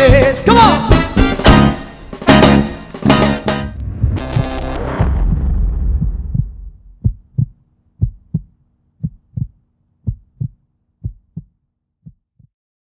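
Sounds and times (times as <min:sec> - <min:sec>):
band music: 0:00.0 - 0:05.3
heartbeat thumps: 0:03.8 - 0:12.5.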